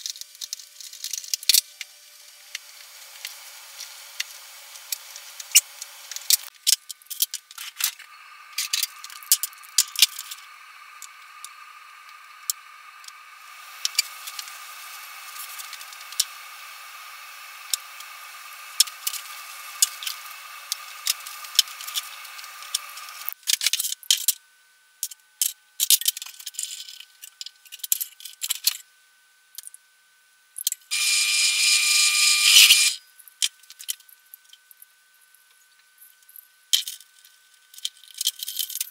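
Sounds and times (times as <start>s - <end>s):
loud rasping noise: 7.6s - 23.4s, 30.9s - 33.0s
plastic parts clicking and clacking: 36.8s - 37.1s, 37.7s - 38.9s.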